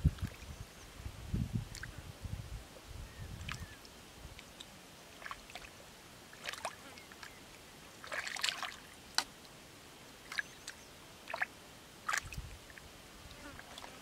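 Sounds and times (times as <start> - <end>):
splashes and squelches in muddy water: 1.7 - 1.9, 3.4 - 9.6, 10.2 - 12.9, 13.6 - 14.0.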